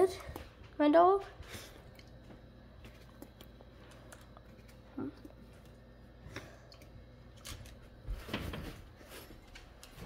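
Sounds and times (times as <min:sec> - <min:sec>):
dog paws on hardwood floor: 0:00.0 - 0:04.1, 0:07.4 - 0:10.0.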